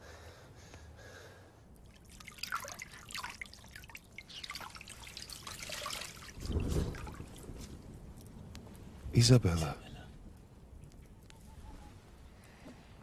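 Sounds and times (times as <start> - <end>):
water dripping and splashing: 1.7 - 9.0.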